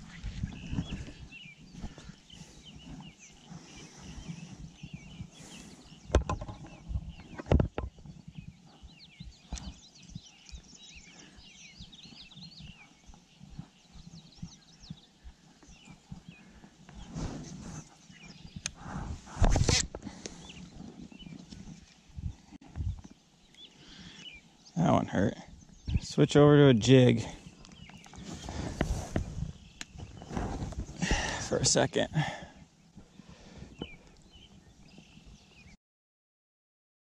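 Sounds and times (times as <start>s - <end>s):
birds chirping: 0.0s - 35.8s
sharp knocks and bumps: 6.1s - 8.0s.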